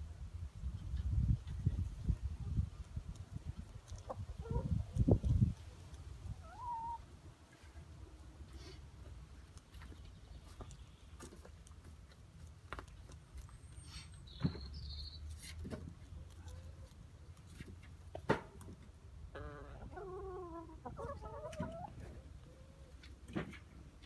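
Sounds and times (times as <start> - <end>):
hens calling: 6.3 - 7.1, 19.3 - 23.0.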